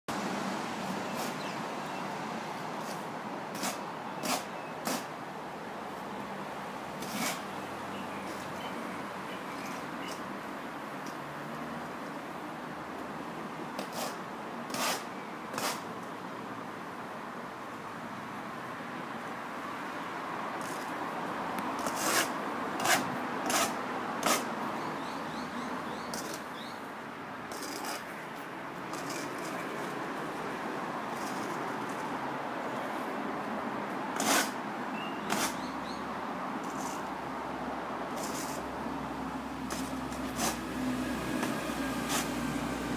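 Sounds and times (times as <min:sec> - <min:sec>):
background noise: 0:00.0 - 0:42.9
straight edge scraping sand: 0:00.9 - 0:01.6, 0:02.8 - 0:05.1, 0:07.0 - 0:07.5, 0:13.8 - 0:15.8, 0:21.8 - 0:24.5, 0:27.5 - 0:28.2, 0:28.9 - 0:30.0, 0:34.2 - 0:34.6, 0:35.2 - 0:35.7, 0:36.6 - 0:37.1, 0:38.2 - 0:38.7, 0:39.7 - 0:40.7, 0:41.4 - 0:42.5.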